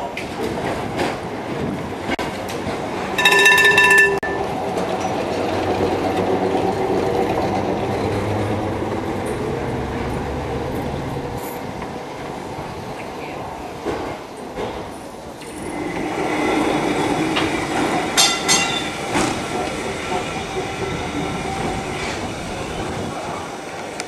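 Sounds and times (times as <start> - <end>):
tram passing: 0.1 - 24.0
tram warning bell: 3.2 - 5.1, 18.2 - 22.1.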